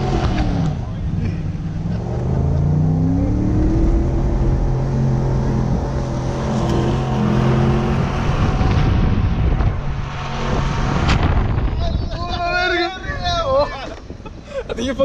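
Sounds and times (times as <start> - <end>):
truck engine revving: 0.0 - 11.8.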